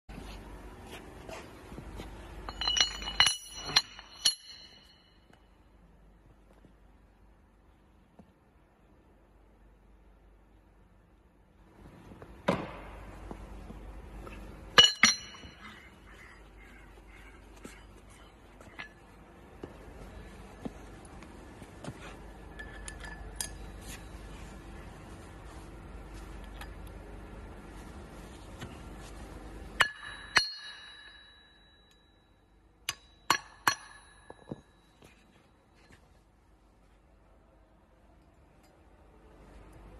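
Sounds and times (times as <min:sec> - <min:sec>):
ringing metal clinks: 0:02.4 - 0:05.4, 0:14.7 - 0:15.9, 0:22.5 - 0:24.0, 0:29.8 - 0:35.1
hammer striking steel: 0:02.5 - 0:05.4, 0:14.8 - 0:15.9, 0:29.8 - 0:32.1, 0:32.8 - 0:35.0.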